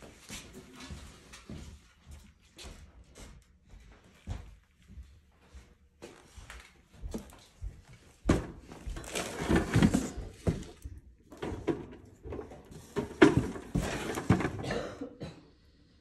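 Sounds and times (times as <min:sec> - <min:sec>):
objects knocking and scraping: 0:08.2 - 0:15.0.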